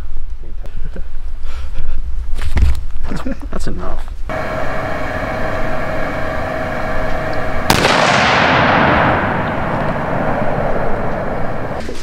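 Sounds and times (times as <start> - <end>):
steady background hum: 0.6 - 12.0
rifle shot with echo: 7.6 - 11.8.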